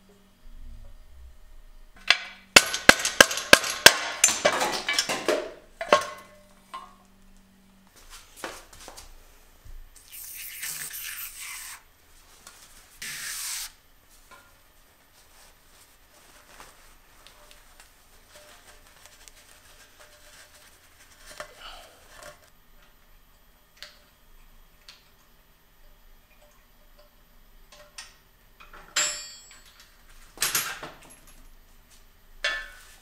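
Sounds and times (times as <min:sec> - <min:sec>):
short hissing bursts: 0:10.0 - 0:11.9, 0:13.0 - 0:13.8
rag rubbing inside metal shell: 0:10.1 - 0:11.9, 0:13.0 - 0:13.8.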